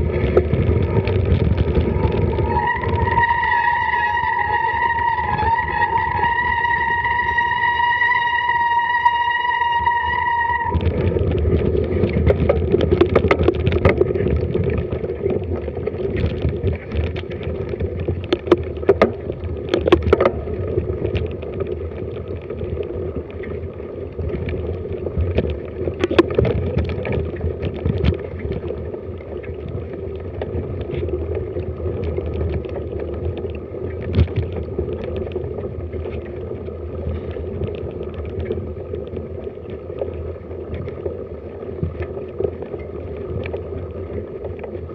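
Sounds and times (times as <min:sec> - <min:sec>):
wind buffeting microphone: 0:00.0 - 0:44.9
bike knocks and rattles: 0:10.9 - 0:14.7.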